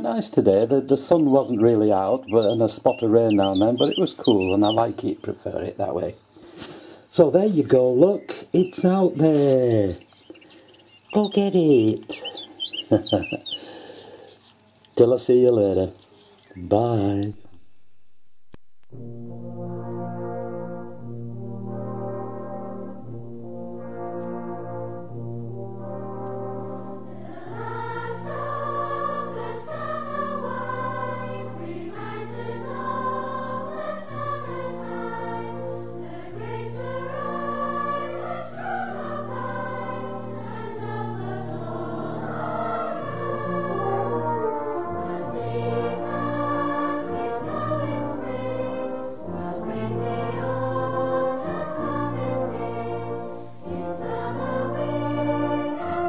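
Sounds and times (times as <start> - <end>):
choir singing: 0.0 - 5.1, 25.6 - 56.0
brass and bass: 0.0 - 5.2, 18.9 - 56.0.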